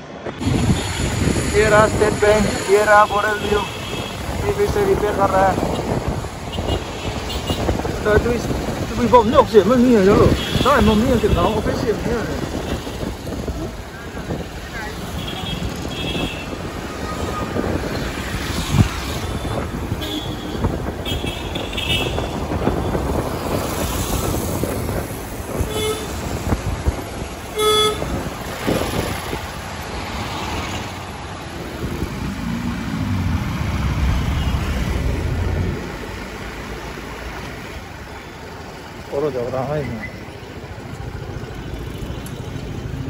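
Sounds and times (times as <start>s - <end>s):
road traffic noise: 0.0s - 43.0s
vehicle horns honking: 2.8s - 7.7s, 10.1s - 11.9s, 14.9s - 17.4s, 19.1s - 23.0s, 25.5s - 26.4s, 27.5s - 28.3s.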